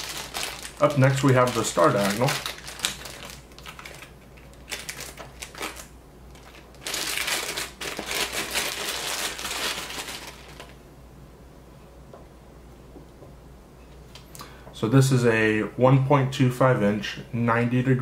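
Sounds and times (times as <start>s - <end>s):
plastic bag crinkling: 0.0s - 10.8s.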